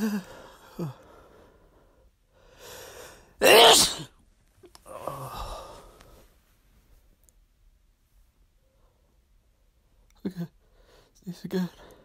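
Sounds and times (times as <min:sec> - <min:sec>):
drawn-in breath: 0:00.2 - 0:03.4
person sneezing: 0:03.4 - 0:04.2.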